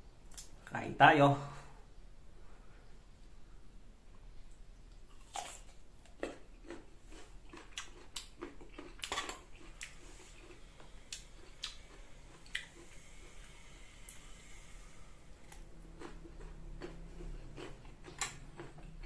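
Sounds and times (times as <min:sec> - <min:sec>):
wet chewing: 0:04.9 - 0:14.7, 0:15.3 - 0:19.0
crunching bites: 0:05.1 - 0:13.0.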